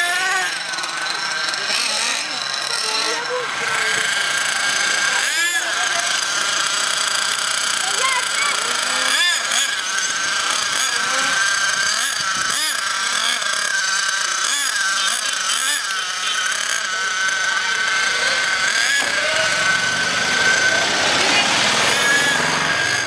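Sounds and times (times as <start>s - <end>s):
small nitro engine revving: 0.0s - 23.0s
passing vehicle engine drone: 17.7s - 23.0s.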